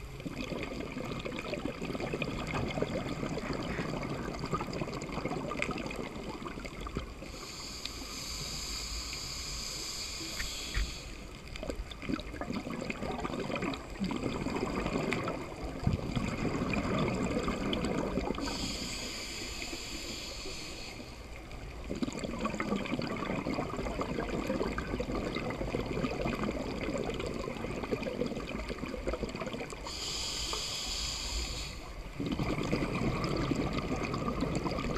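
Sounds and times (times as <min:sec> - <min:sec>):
bubbling exhaled air: 0:00.3 - 0:21.0, 0:21.8 - 0:34.9
regulator inhalation hiss: 0:07.2 - 0:11.4, 0:18.4 - 0:21.4, 0:29.8 - 0:32.0.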